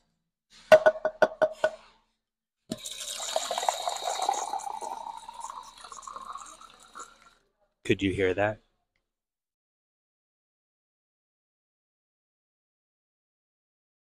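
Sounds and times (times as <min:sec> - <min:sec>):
water pouring into plastic cup: 0:02.7 - 0:07.4.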